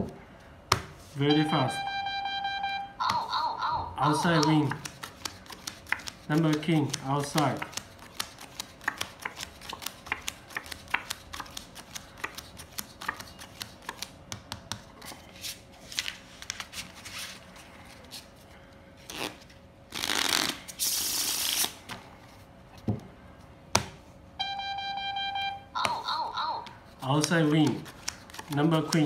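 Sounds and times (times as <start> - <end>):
deck of cards shuffling: 4.1 - 17.4, 19.0 - 21.8, 26.7 - 29.0
playing cards snapping: 4.2 - 14.8, 27.1 - 29.0.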